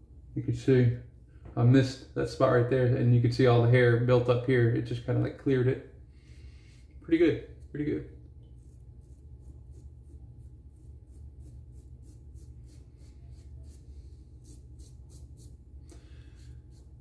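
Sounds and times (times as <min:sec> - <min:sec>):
razor cutting stubble: 0:08.6 - 0:15.6.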